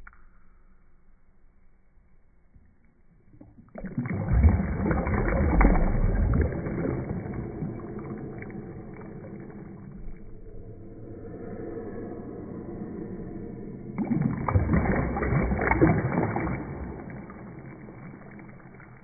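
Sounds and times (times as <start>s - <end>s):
water splashing and churning: 3.3s - 11.9s, 13.8s - 19.0s.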